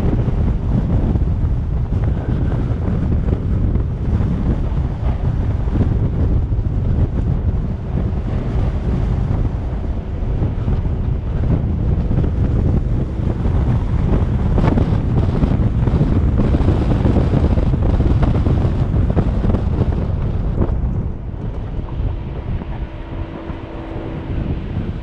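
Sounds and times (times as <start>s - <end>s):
tyre and road noise: 0.0s - 25.0s
wind rushing over microphone: 0.0s - 25.0s.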